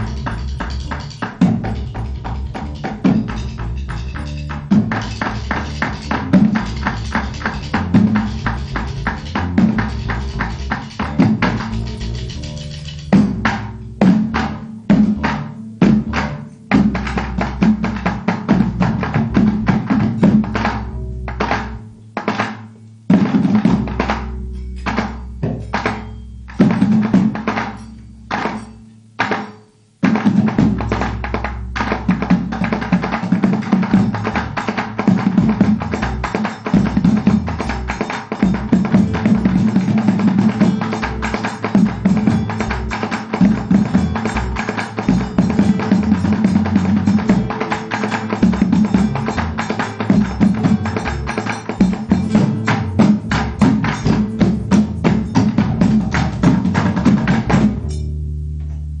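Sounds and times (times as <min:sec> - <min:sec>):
electric bass guitar: 0:00.0 - 0:22.2, 0:33.8 - 0:59.0
drumsticks beating plastic buckets: 0:00.0 - 0:28.6.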